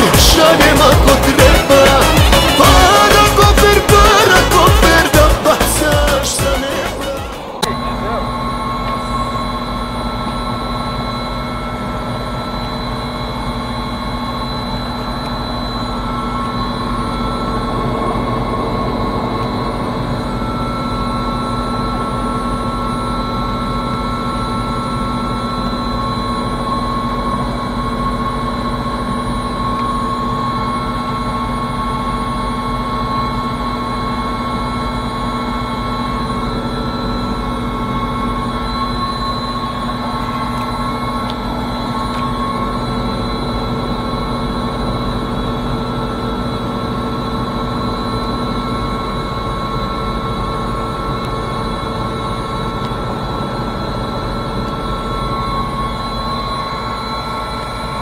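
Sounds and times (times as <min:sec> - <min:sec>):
helicopter engine whine: 0:00.0 - 0:58.0
helicopter rotor noise: 0:00.0 - 0:58.0.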